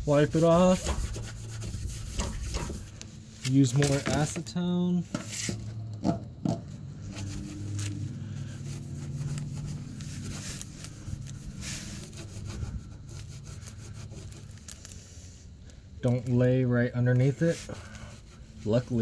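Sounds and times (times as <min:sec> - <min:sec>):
cloth rag wiping boat hull: 0:00.0 - 0:04.4, 0:07.0 - 0:14.4, 0:17.2 - 0:19.0
low steady hum: 0:00.0 - 0:19.0.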